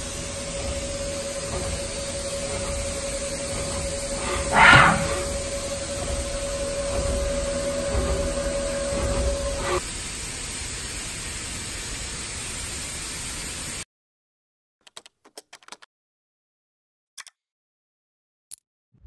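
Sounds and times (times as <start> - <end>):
machine steady tone: 0.0 - 9.8
machine hiss: 0.0 - 13.8.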